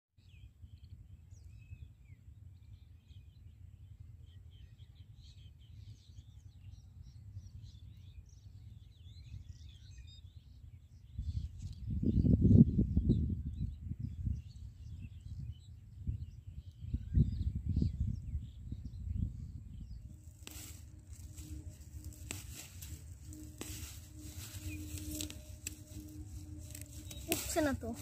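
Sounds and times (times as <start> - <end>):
small birds chirping faintly: 13.5 - 28.0
low rumble: 18.0 - 28.0.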